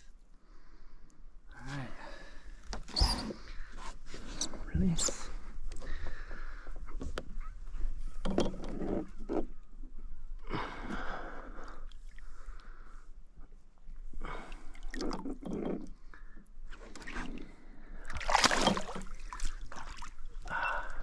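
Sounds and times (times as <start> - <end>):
water sloshing and splashing: 14.2 - 16.1, 16.7 - 21.0
fish kicking loud splash: 18.2 - 19.0.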